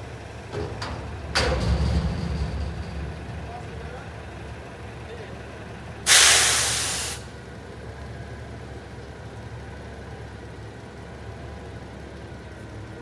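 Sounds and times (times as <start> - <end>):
diesel engine idling: 0.0 - 13.0
air brake hiss: 6.0 - 7.3.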